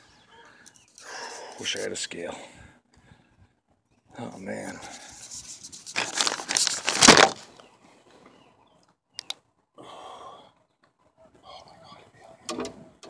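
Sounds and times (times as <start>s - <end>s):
sharp clicks: 9.2s - 9.4s.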